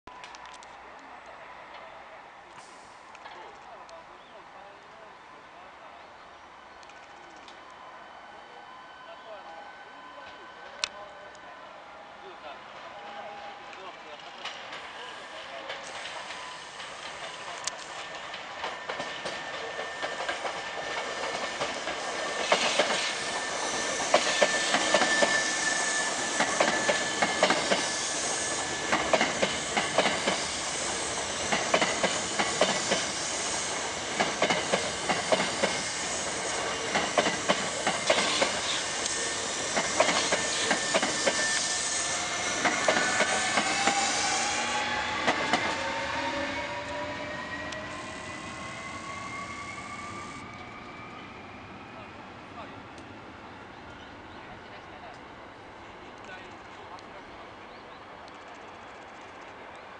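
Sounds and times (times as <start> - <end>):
rolling hiss: 2.5 - 3.4, 15.0 - 46.4
train wheels clacking: 14.2 - 48.1.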